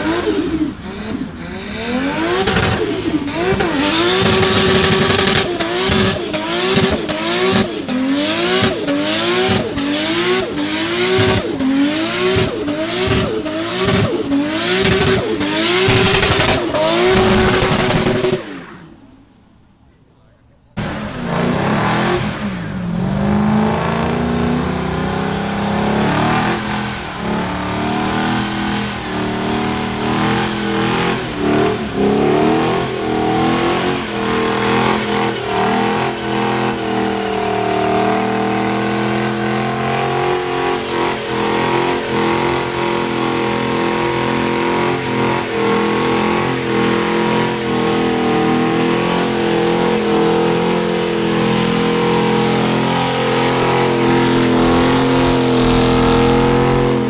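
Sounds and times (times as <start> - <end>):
tyres spinning: 0.0 - 19.0
car engine revving high: 0.0 - 19.2, 20.8 - 57.0.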